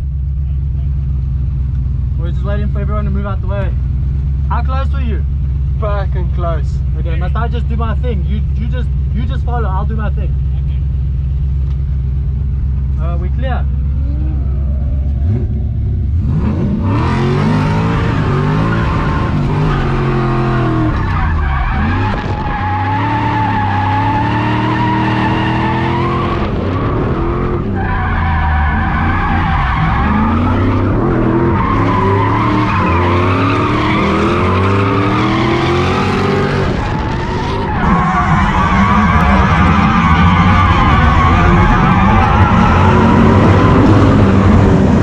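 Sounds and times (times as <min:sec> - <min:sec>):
car engine revving: 0:00.0 - 0:45.0
tyres squealing: 0:17.5 - 0:26.4, 0:27.6 - 0:44.4.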